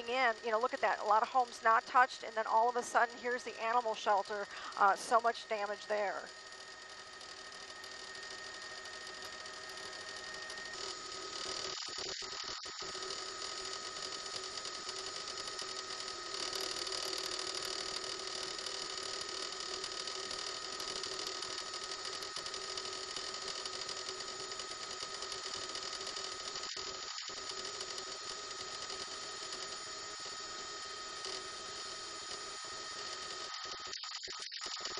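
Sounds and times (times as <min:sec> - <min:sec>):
helicopter cabin noise: 0:00.0 - 0:07.1.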